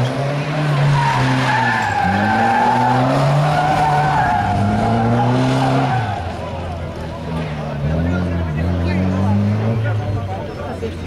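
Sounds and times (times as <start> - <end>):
car engine revving hard: 0.0 - 6.6, 7.3 - 10.2
tyres squealing: 0.6 - 6.7.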